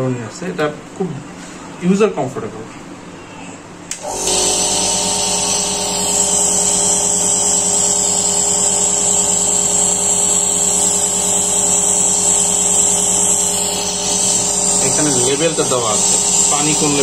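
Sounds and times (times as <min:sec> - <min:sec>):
electric air compressor humming: 0:03.9 - 0:17.0.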